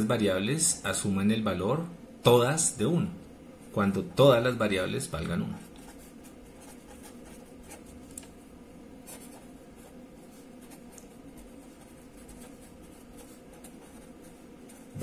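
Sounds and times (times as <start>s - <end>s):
marker scratching on paper: 5.6s - 8.1s, 9.0s - 15.0s.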